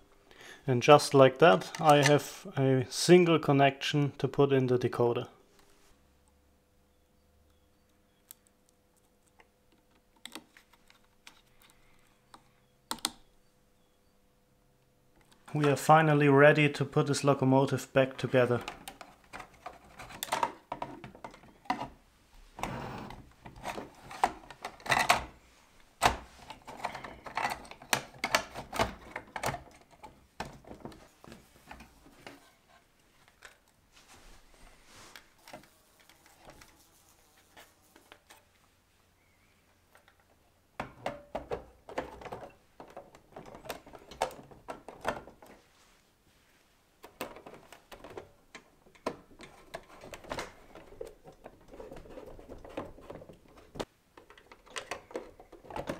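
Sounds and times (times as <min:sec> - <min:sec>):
plastic parts clicking and knocking: 0:01.5 - 0:02.2, 0:09.3 - 0:13.3, 0:18.4 - 0:22.0, 0:23.1 - 0:25.4, 0:26.0 - 0:32.6, 0:33.2 - 0:33.8, 0:39.8 - 0:45.6, 0:47.0 - 0:55.9.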